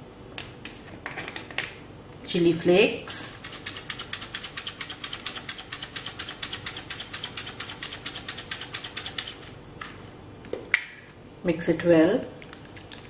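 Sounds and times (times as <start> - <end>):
chili flakes rattling in container: 3.4 - 10.2.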